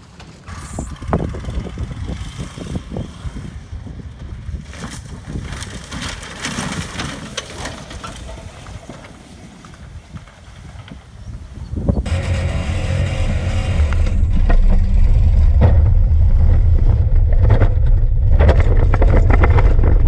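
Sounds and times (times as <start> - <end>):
wind buffeting microphone: 0.4 - 20.0
truck engine driving past: 12.0 - 18.4.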